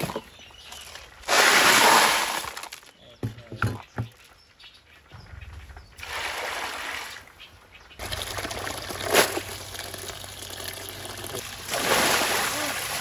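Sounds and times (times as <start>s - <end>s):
sharp water splash: 6.0s - 7.3s, 11.5s - 13.0s
water running from hose into basin: 8.0s - 13.0s.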